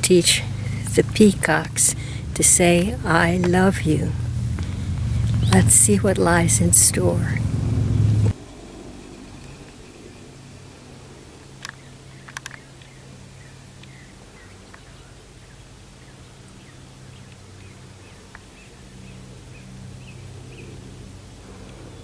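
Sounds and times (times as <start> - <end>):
small birds chirping: 0.0 - 22.0
steady low hum: 0.0 - 22.0
sharp clicks: 11.6 - 12.9.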